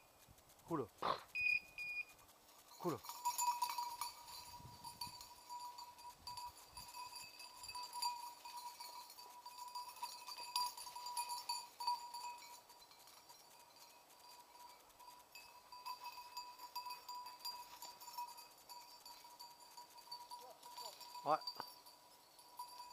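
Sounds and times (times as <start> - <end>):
dog collar bell ringing: 1.4 - 22.9.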